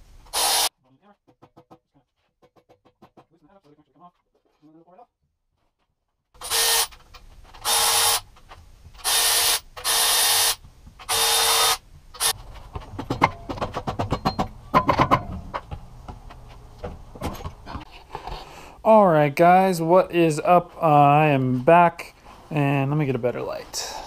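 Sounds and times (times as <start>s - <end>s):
air ratchet whining hiss: 0.3s - 0.7s
tools clicking and knocking: 12.2s - 17.6s.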